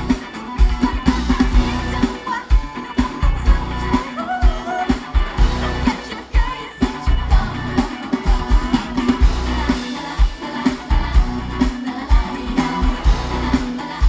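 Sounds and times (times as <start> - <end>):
pop song over sound system: 0.0 - 14.0
heavy bass beat: 5.2 - 5.9, 7.0 - 9.8, 10.9 - 11.7, 12.4 - 13.8.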